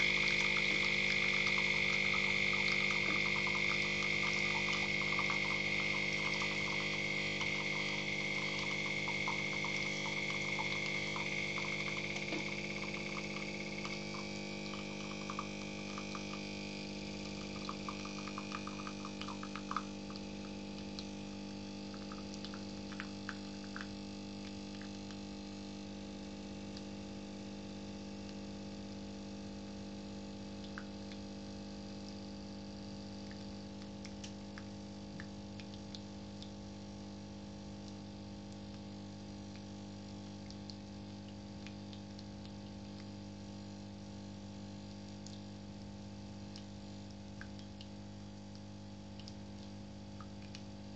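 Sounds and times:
low machine hum: 0.0s - 23.9s
coffee dripping into a mug: 0.0s - 25.2s.

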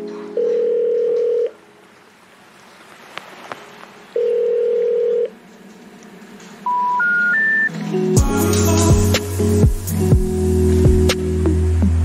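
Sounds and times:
telephone ringing tones: 0.3s - 1.6s, 4.2s - 5.4s, 6.7s - 7.7s
short rising telephone beeps: 6.7s - 7.7s.

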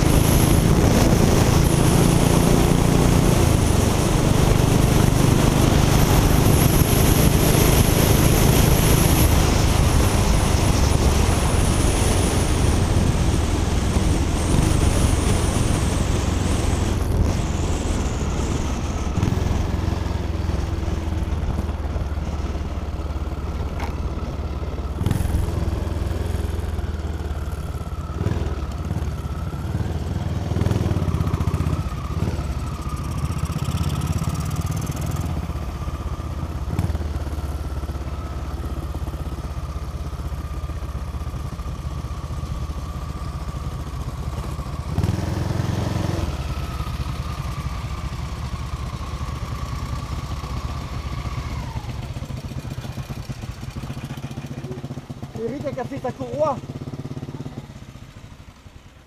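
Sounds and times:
wind rush on microphone: 0.0s - 19.8s
motorcycle engine running: 0.0s - 59.0s.

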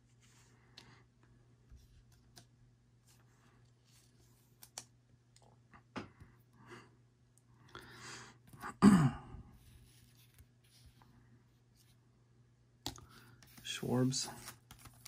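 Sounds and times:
man breathing in: 7.6s - 8.4s.

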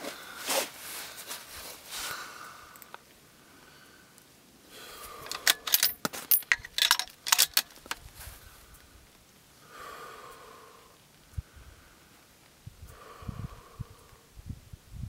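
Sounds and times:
metallic jangling and clinking: 5.2s - 8.0s.

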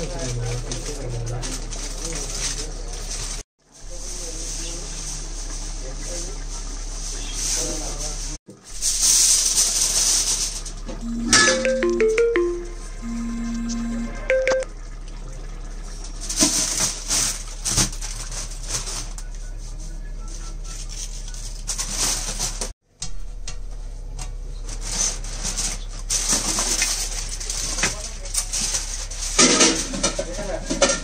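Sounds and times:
aluminium foil crinkling: 0.0s - 6.4s, 8.8s - 10.8s, 16.3s - 19.4s, 20.3s - 22.7s, 24.6s - 30.4s.

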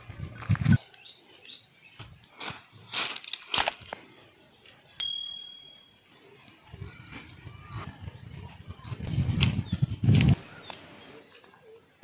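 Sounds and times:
birds chirping: 0.2s - 3.0s, 4.0s - 12.0s
sharp ringing click: 5.0s - 5.9s.

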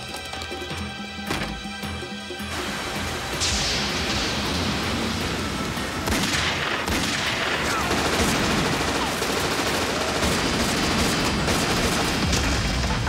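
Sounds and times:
heavy rain hiss: 2.5s - 12.0s
rapid submachine gun fire: 6.1s - 13.0s.

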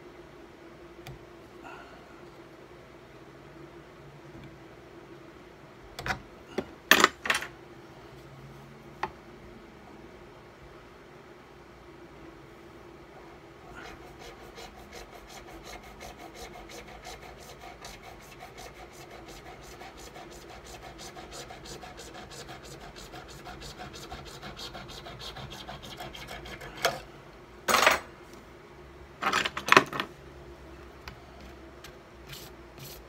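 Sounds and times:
saw rasping through wax: 13.7s - 26.8s.

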